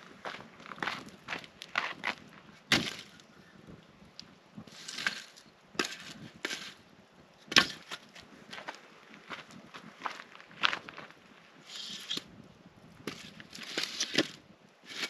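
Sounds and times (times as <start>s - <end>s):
firewood knocking: 2.7s - 3.2s.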